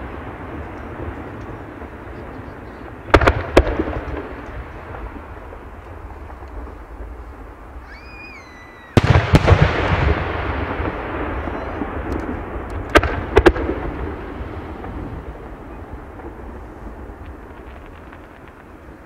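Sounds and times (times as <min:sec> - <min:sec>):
echoing crackling tail: 0:00.0 - 0:19.0
high firework whistle: 0:07.7 - 0:09.6, 0:11.3 - 0:11.9
firework shells bursting: 0:08.9 - 0:19.0.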